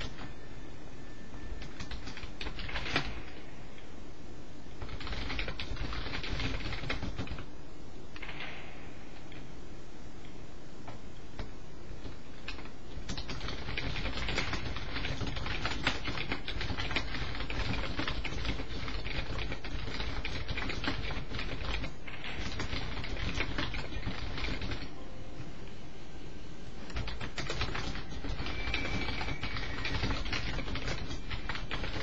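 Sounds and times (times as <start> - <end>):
typing on computer keyboard: 0.0 - 0.4, 1.5 - 3.4, 4.8 - 7.5, 12.0 - 24.9, 26.9 - 32.0
low steady hum: 0.0 - 32.0.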